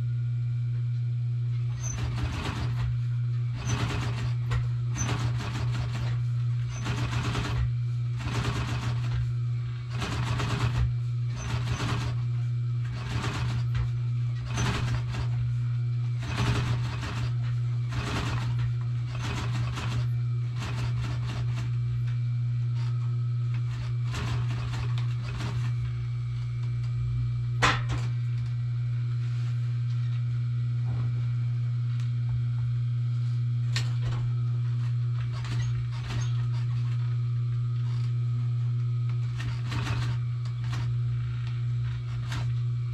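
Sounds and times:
sewing machine motor humming: 1.4 - 29.3, 33.2 - 42.9
sewing machine stitching: 1.6 - 26.0, 33.8 - 37.2, 39.1 - 42.6.

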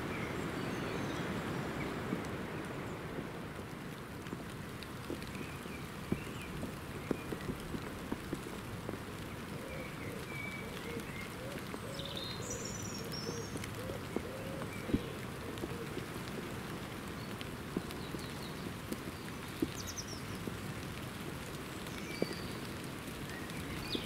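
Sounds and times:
rain on wet leaves: 0.0 - 24.0
raindrops clicking: 0.1 - 24.0
woodland birds calling: 9.1 - 16.1.

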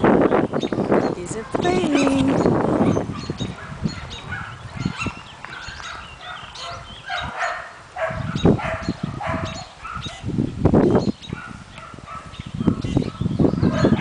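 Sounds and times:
puppies yipping and whining: 1.6 - 10.3.

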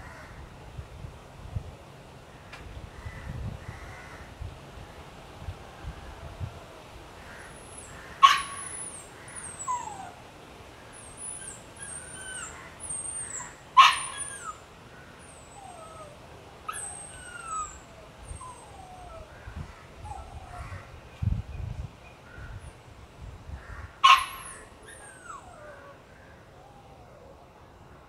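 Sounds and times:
dog yelping: 8.2 - 10.2, 11.0 - 14.6, 15.2 - 19.3, 24.0 - 26.0
dog whimpering: 8.8 - 10.2, 11.0 - 14.6, 15.2 - 19.3, 20.0 - 20.7, 24.1 - 26.0.

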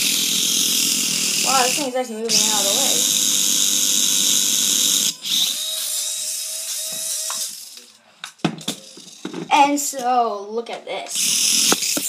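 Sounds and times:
toy car electric motor whirring: 0.0 - 7.9, 11.1 - 12.0.

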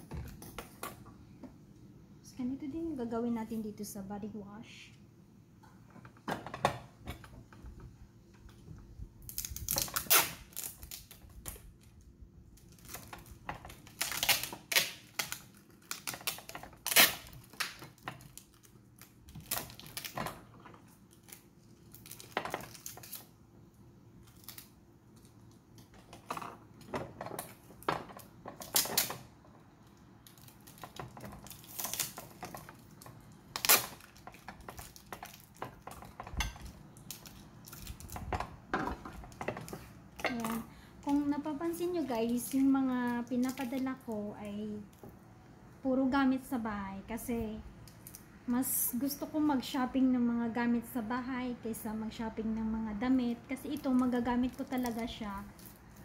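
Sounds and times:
packing tape ripping off roll: 9.2 - 12.0, 12.6 - 23.3, 24.2 - 25.3, 27.3 - 29.3, 30.2 - 35.8.

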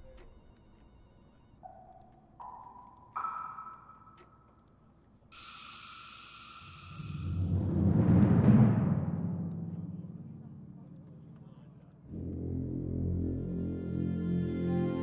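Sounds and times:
bright held tone with hiss: 5.3 - 7.5
low rumble: 7.4 - 13.6.

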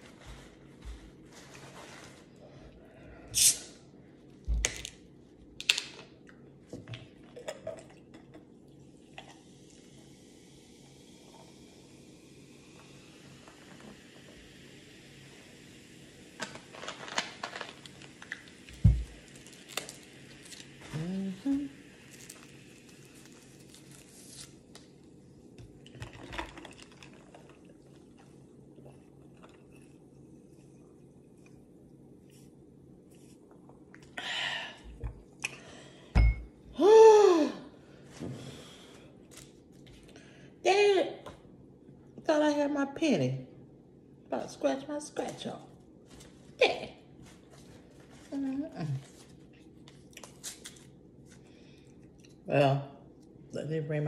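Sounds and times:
sipping through a straw: 3.3 - 3.8
straw wrapper crinkling: 16.4 - 18.5, 19.1 - 21.1, 22.0 - 25.0, 49.0 - 51.5
soda pouring into glass: 25.8 - 30.0
glass knocks and clinks: 36.2 - 36.5.

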